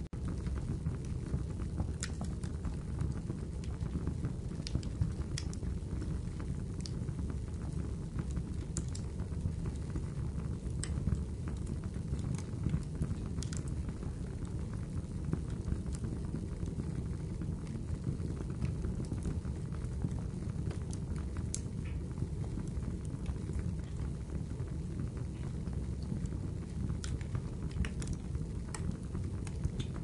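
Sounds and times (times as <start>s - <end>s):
fire crackling: 0.2s - 30.0s.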